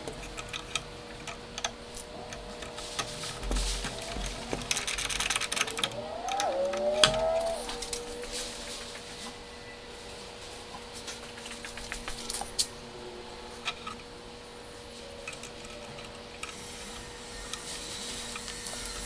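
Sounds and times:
small screws and plastic clicking: 0.0s - 6.8s, 15.2s - 16.8s
steady hum: 0.0s - 19.0s.

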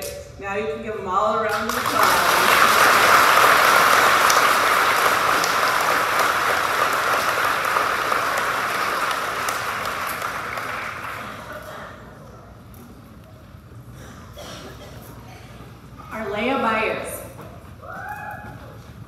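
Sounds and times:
crowd applauding: 1.5s - 12.0s.

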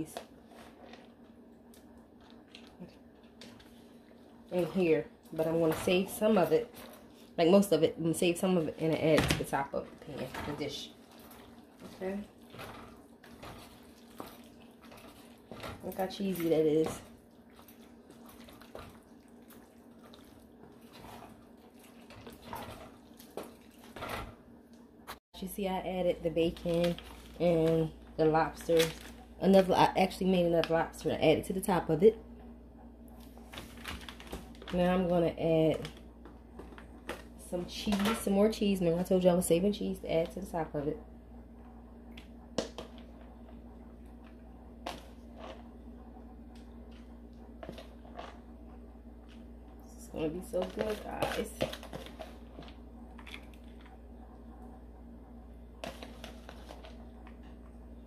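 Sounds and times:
low steady hum: 0.0s - 58.0s
spoon stirring thick food in pot: 8.2s - 24.5s.

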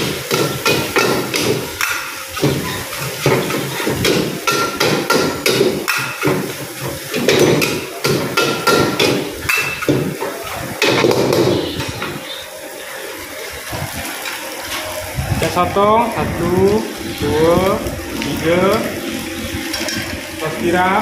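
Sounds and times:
metal utensils clanging on wok: 0.0s - 12.2s, 19.7s - 20.2s.

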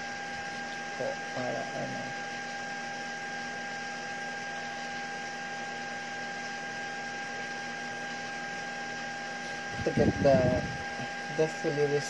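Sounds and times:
electrical hum and hiss: 0.0s - 12.0s
high whine: 9.3s - 12.0s.

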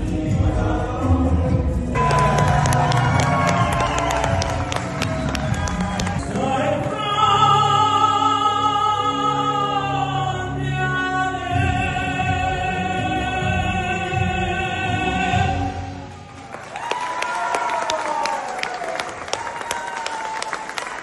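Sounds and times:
musical accompaniment: 0.0s - 17.0s.

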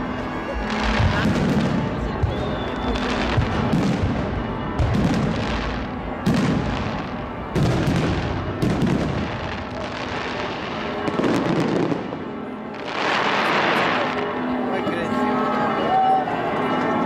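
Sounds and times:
firework cracks and crackling: 0.6s - 12.1s, 12.8s - 14.3s.

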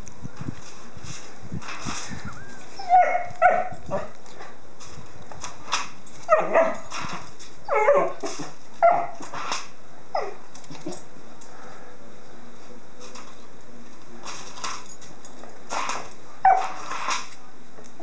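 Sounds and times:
puppy yipping and barking: 2.8s - 3.8s.

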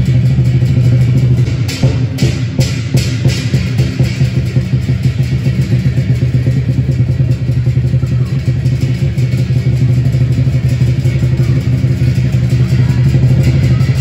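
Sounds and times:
drum rolling rapidly: 0.0s - 14.0s.

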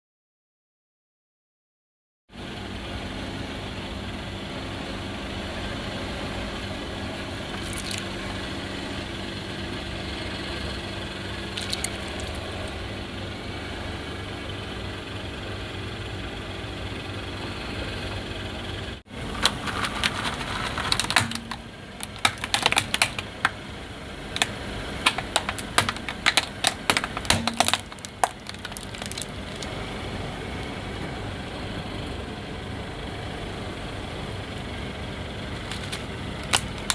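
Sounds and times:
plastic toys cracking under tyre: 7.4s - 8.1s, 11.5s - 12.8s, 19.2s - 23.6s, 24.3s - 29.8s, 35.6s - 36.9s
car engine idling: 18.3s - 32.8s.

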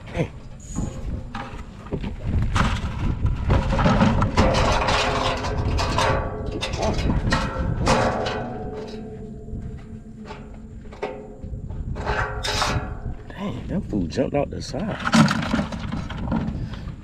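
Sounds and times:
wire net and metal tongs rattling: 3.4s - 9.4s.

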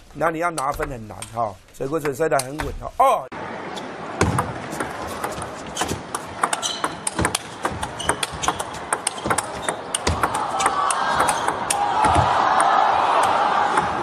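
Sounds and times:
crowd noise: 3.3s - 14.0s
ping pong ball clicking: 6.4s - 11.8s.

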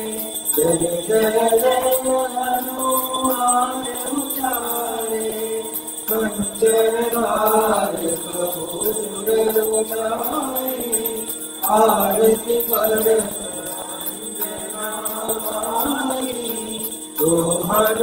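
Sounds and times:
devotional hymn singing: 0.0s - 18.0s
small bells jingling: 0.0s - 18.0s.

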